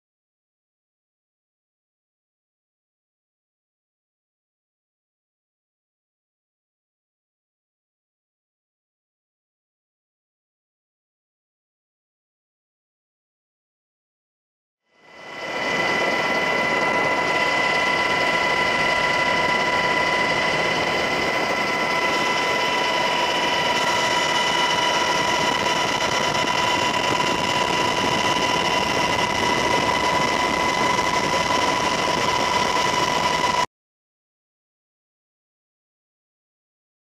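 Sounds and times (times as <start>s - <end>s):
aircraft cabin engine drone: 15.0s - 33.7s.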